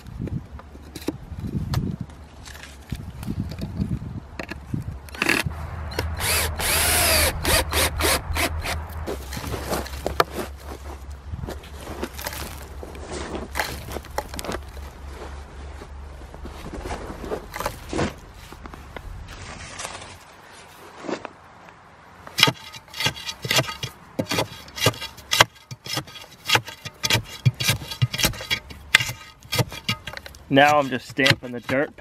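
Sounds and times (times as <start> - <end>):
dirt and stones scraped: 0.0 - 21.6, 22.2 - 32.0
digging bar tamping thuds: 22.3 - 32.0.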